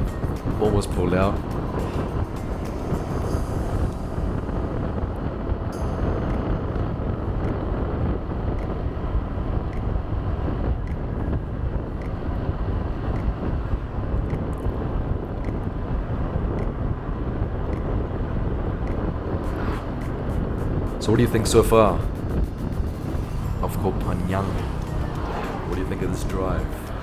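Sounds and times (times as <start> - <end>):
wind rush on microphone: 0.0 - 27.0.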